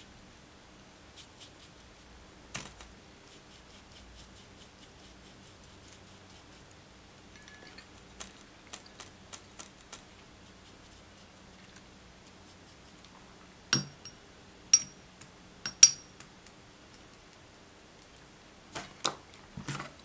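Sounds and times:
paintbrush clinking on glass jar: 0:07.4 - 0:08.0, 0:13.8 - 0:15.0, 0:15.7 - 0:16.1.

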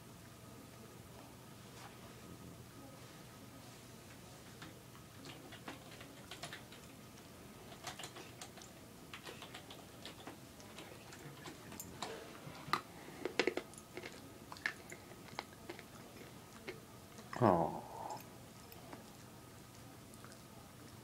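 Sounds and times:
dog mouth clicking and smacking: 0:07.7 - 0:12.1.

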